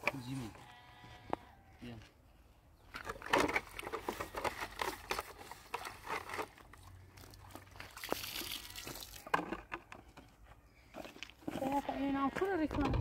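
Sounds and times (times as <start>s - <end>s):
plastic basin scrapes and clatters: 3.0s - 6.8s
water splashing onto ground: 7.1s - 9.4s.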